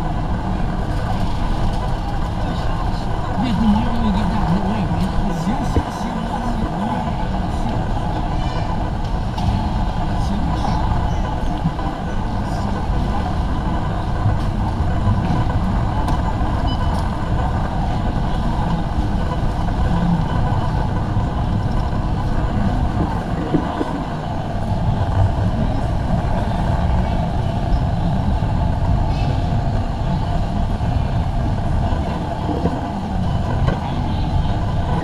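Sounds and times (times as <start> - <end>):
crowd hubbub: 0.0 - 35.0.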